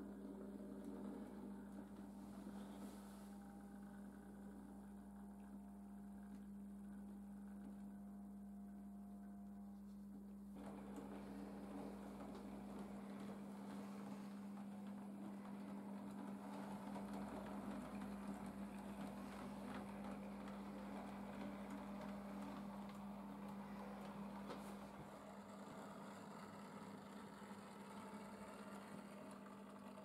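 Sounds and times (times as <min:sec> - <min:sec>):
small electric motor humming: 0:10.5 - 0:30.0
model train wheels rumbling: 0:10.6 - 0:30.0.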